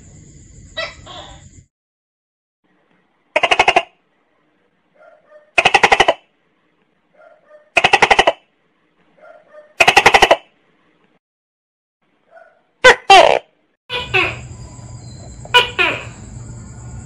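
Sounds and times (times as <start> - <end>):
gecko calling: 0.7 - 1.5, 13.3 - 16.5.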